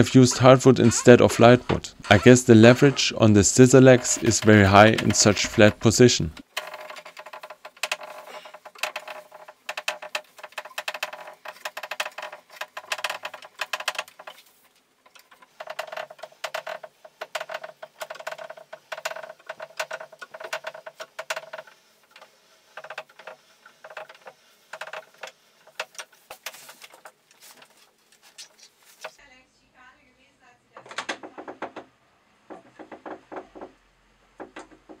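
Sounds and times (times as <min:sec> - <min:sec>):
hand crank mechanical clicks and rattles: 0:03.7 - 0:29.2.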